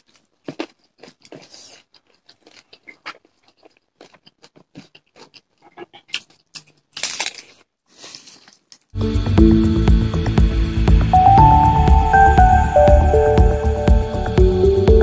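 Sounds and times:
chewing and crunching food: 0.0s - 8.9s.

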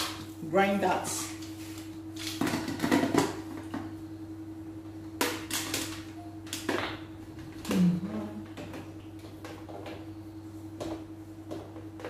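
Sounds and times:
steady low hum: 0.0s - 12.0s
kitchen items knocking and clattering: 2.4s - 3.8s.

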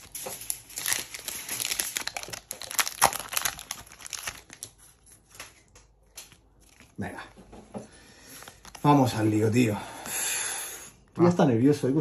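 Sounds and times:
foil wrapper crinkling: 0.0s - 7.1s, 8.2s - 9.4s.

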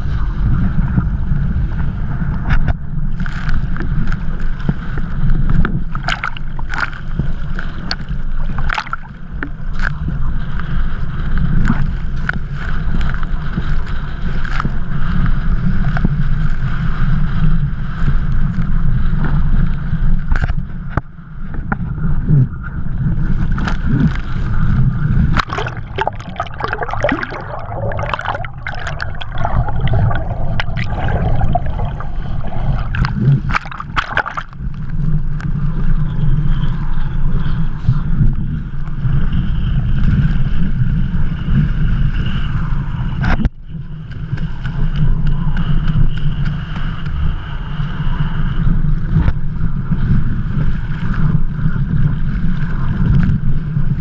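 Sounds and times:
wind rumbling on microphone: 0.0s - 54.0s
water splashing and sloshing: 2.4s - 9.9s, 25.1s - 35.1s.

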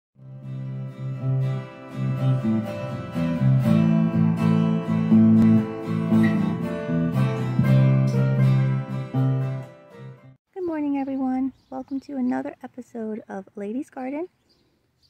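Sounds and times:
acoustic guitar plucked notes: 0.2s - 10.4s.

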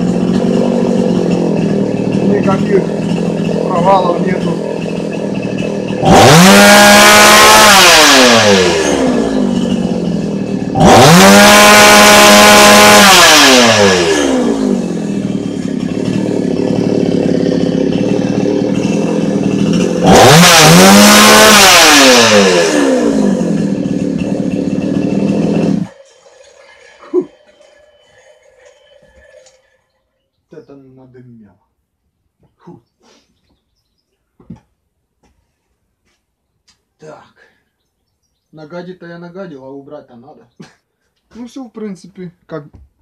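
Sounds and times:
chainsaw idling and revving: 0.0s - 30.0s.

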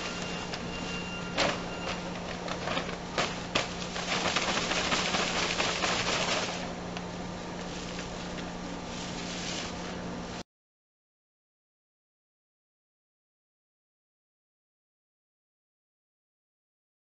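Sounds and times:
paper sack crackling and ripping: 0.0s - 6.8s, 7.6s - 10.0s
powder pouring into hopper: 0.0s - 6.8s
low machine hum: 0.0s - 10.4s.

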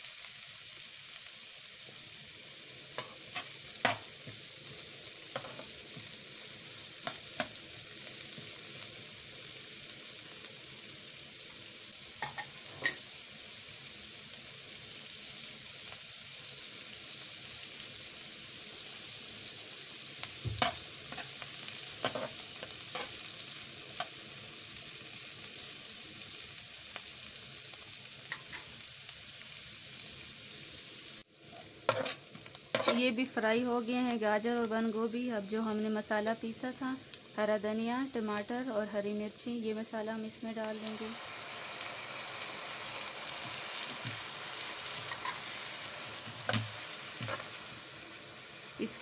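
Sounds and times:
vegetables sizzling in a pan: 0.0s - 49.0s
spatula scraping a pan: 5.4s - 5.7s, 20.6s - 21.4s, 22.0s - 23.2s, 31.9s - 33.0s, 43.4s - 47.6s.

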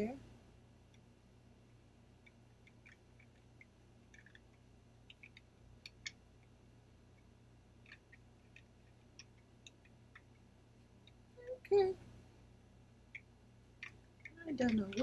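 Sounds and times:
soft small clicks and ticks: 1.7s - 11.3s, 13.0s - 15.0s.

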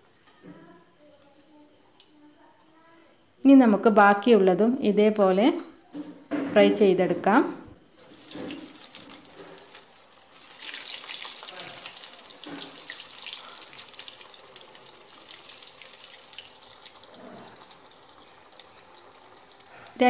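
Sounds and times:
chicken deep-frying in oil: 7.9s - 20.0s.

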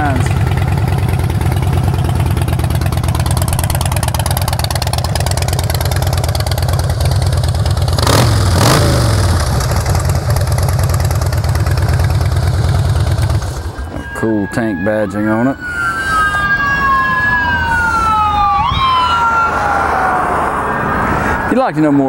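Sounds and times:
motorcycle engine idling: 0.0s - 14.2s
motorcycle engine revving: 0.0s - 14.2s.

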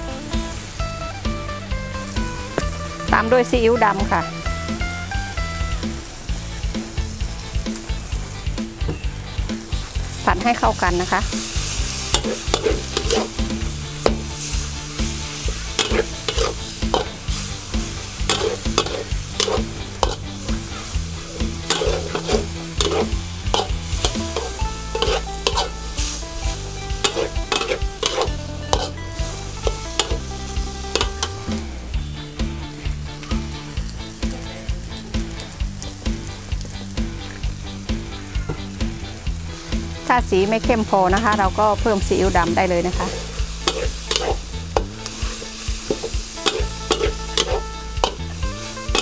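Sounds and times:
noodles sizzling in a pan: 0.0s - 49.0s
spatula scraping a pan: 11.3s - 29.0s, 29.6s - 31.3s, 42.9s - 49.0s.

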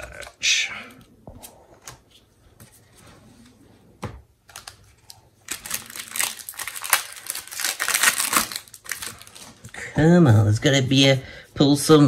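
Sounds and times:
foil wrapper crinkling and tearing: 5.4s - 9.7s.

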